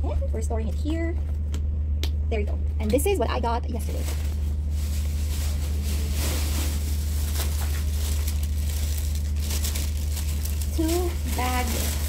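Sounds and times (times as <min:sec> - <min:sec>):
low hum: 0:00.0 - 0:12.0
plastic bags rustling: 0:03.7 - 0:12.0.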